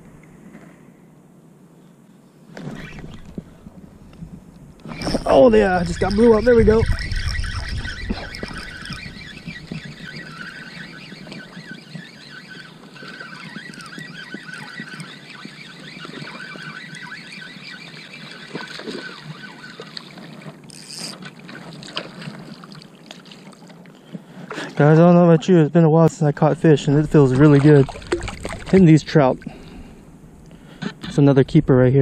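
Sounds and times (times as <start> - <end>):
wind on microphone: 2.6 - 17.6, 26.7 - 31.8
fishing reel cranking: 4.8 - 22.5
small waves lapping: 4.8 - 25.7, 26.5 - 30.9
fish splashing: 4.9 - 23.9, 26.8 - 30.2.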